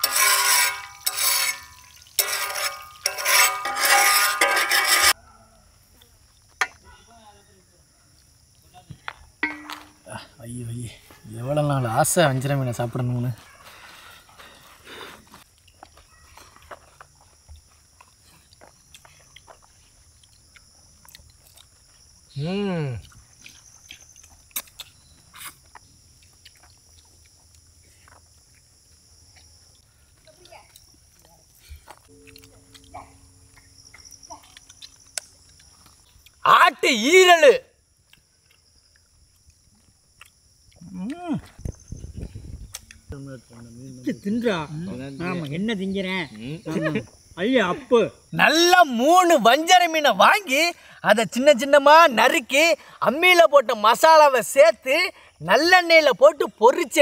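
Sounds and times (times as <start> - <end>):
metal spatula scraping iron pan: 0.0 - 5.2
people chewing food: 13.4 - 36.5, 37.8 - 43.8
high-pitched insect drone: 32.0 - 37.6.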